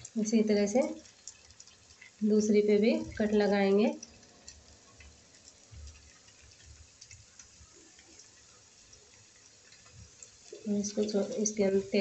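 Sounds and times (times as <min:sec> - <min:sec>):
hot oil sizzling and crackling: 0:00.0 - 0:12.0.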